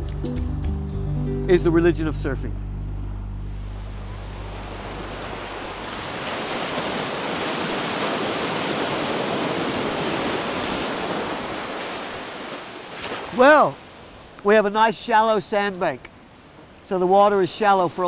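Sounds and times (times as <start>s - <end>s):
ocean surf breaking on beach: 3.8s - 18.0s.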